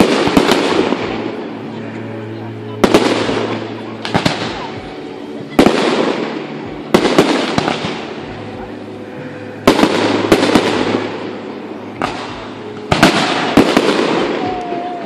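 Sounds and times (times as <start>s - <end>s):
rumble and crackle: 0.0s - 15.0s
firework shells bursting: 9.7s - 14.7s.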